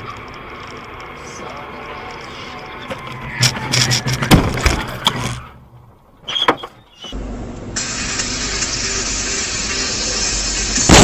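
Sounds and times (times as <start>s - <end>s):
steady road noise: 0.0s - 11.0s
car collision bangs and clatter: 2.9s - 5.2s.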